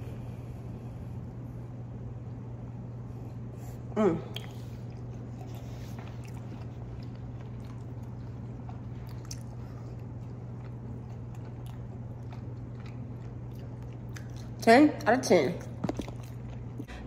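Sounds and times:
steady low hum: 0:00.0 - 0:17.0
person chewing food: 0:04.3 - 0:14.6, 0:15.6 - 0:17.0.

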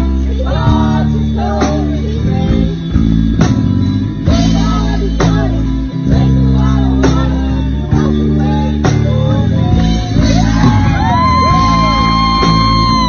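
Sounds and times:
live band playing country-rock: 0:00.0 - 0:13.0
boy singing into a microphone: 0:04.4 - 0:12.9.

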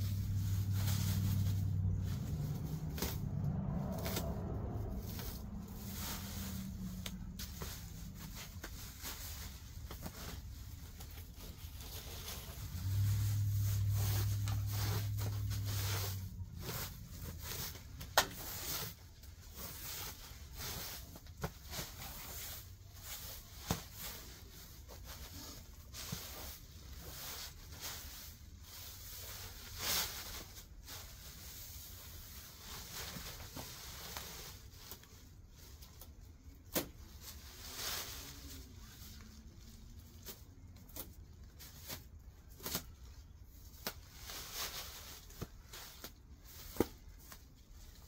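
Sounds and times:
dry weeds rustling and crackling: 0:00.0 - 0:21.1.

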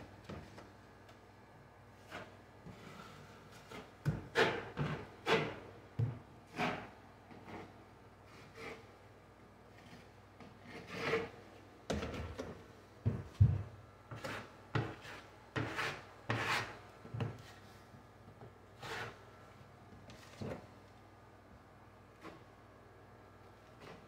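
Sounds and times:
taping knife scraping compound: 0:02.0 - 0:05.6, 0:06.5 - 0:08.9, 0:09.8 - 0:11.4, 0:14.1 - 0:16.8, 0:18.8 - 0:19.2.

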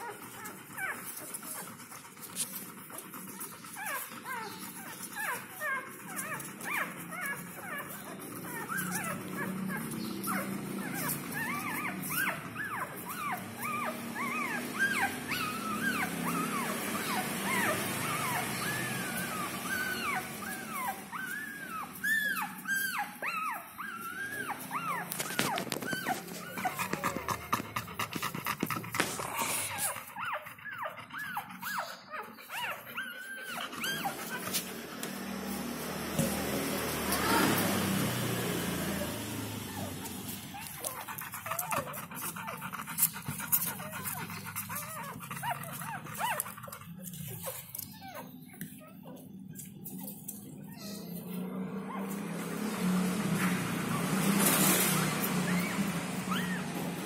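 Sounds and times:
dog panting: 0:00.0 - 0:35.7, 0:39.6 - 0:57.0
puppies squeaking and whimpering: 0:00.0 - 0:57.0
small clicks and rustles: 0:23.4 - 0:30.0, 0:40.0 - 0:51.0.

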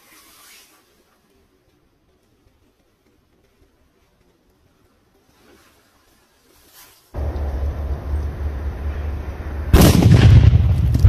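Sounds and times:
firecracker bang: 0:07.2 - 0:11.0
firecracker rushing noise: 0:07.2 - 0:11.0.

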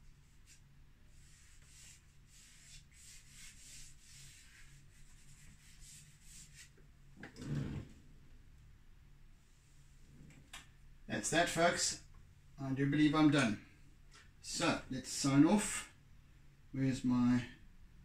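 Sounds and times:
pastel scratching on canvas: 0:00.2 - 0:06.8.

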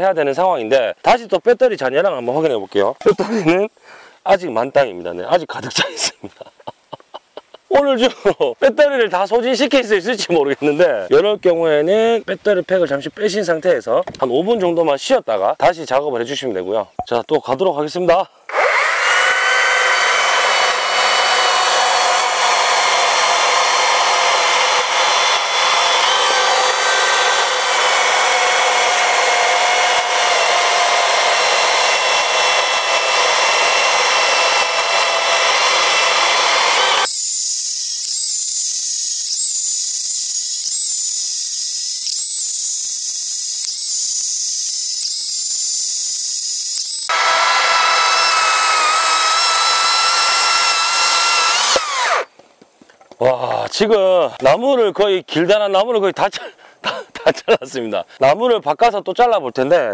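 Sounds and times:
chainsaw cutting log: 0:18.5 - 0:52.4.

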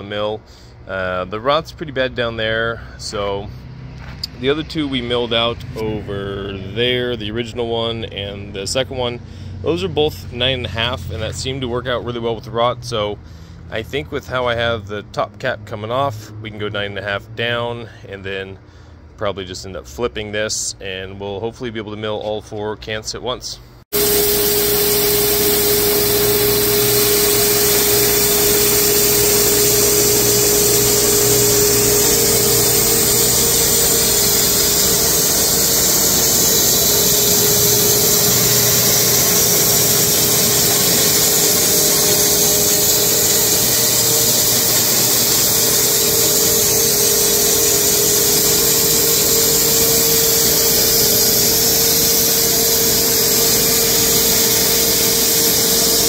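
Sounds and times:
steady hum: 0:23.9 - 0:56.0
bandsaw cutting wood: 0:24.0 - 0:56.0
dust collector suction: 0:24.0 - 0:56.0.

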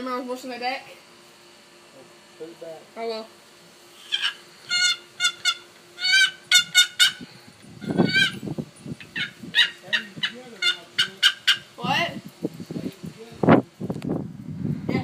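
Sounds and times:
turkey box call yelps: 0:04.0 - 0:07.2, 0:07.8 - 0:08.4, 0:09.0 - 0:11.8.

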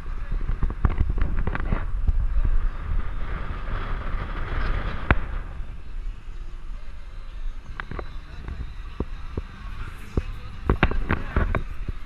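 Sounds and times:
engine road and wind rumble: 0:00.0 - 0:12.0.

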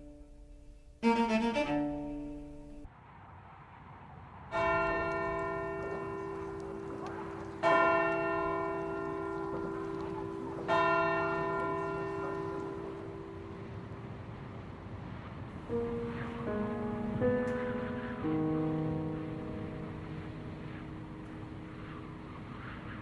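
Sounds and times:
string music: 0:00.0 - 0:02.9
church bell tolling: 0:04.5 - 0:13.9.

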